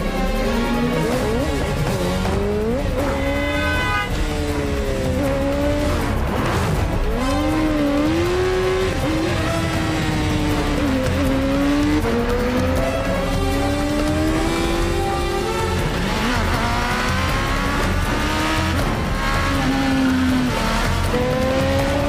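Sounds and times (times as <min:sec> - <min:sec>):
film score music: 0:00.0 - 0:22.0
motorcycle engine revving: 0:00.1 - 0:22.0.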